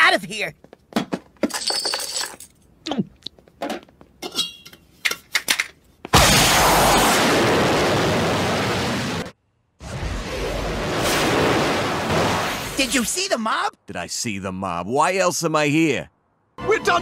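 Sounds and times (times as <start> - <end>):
rocket blast rushing: 6.2 - 12.9.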